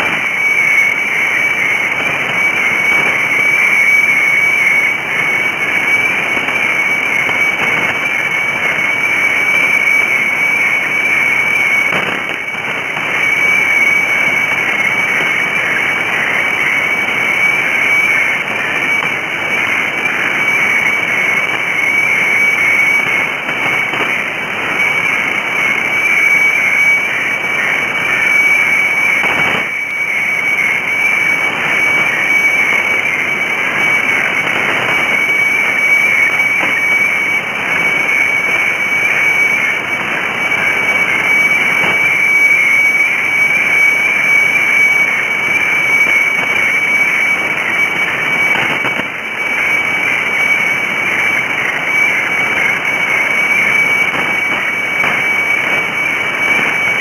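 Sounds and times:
radio hiss and static: 0.0 - 57.0
scratchy signal chatter: 0.0 - 57.0
steady high radio tone: 0.0 - 57.0.

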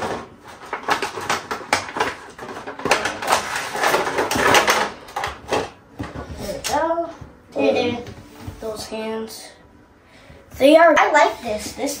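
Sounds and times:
plastic toys clicking and rustling: 0.0 - 6.8.

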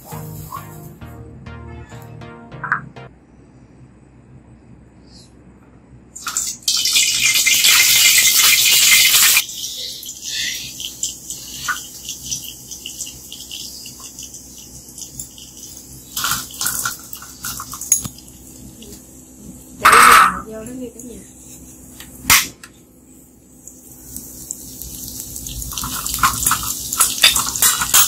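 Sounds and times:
oil crackling and spitting: 6.2 - 17.9, 24.0 - 28.0
food sizzling in hot oil: 6.2 - 18.8, 23.5 - 28.0.

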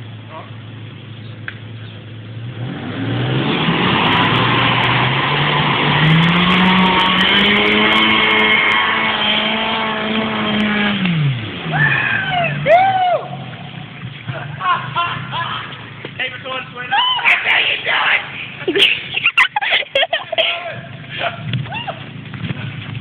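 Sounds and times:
car engine revving hard: 2.2 - 11.8.

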